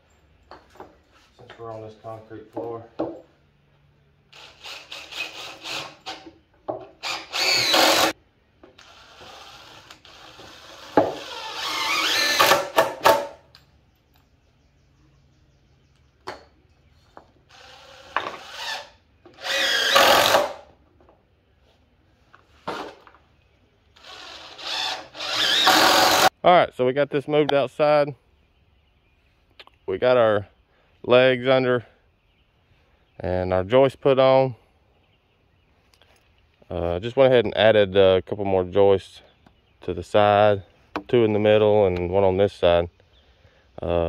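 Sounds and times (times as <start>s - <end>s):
power driver driving screws: 6.9s - 8.2s, 8.8s - 13.3s, 17.5s - 20.6s, 24.0s - 26.3s.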